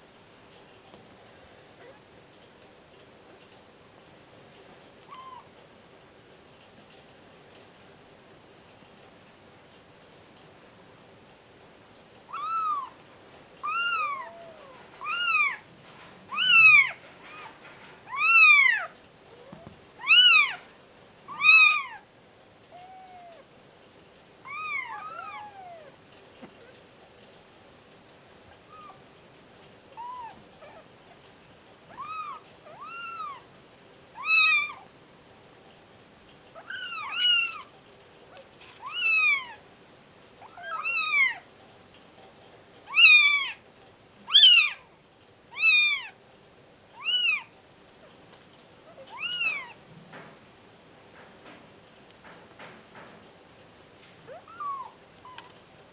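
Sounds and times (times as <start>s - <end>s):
kittens mewing: 16.3s - 20.6s, 24.4s - 26.8s, 29.9s - 30.9s, 48.9s - 49.8s, 54.3s - 55.6s.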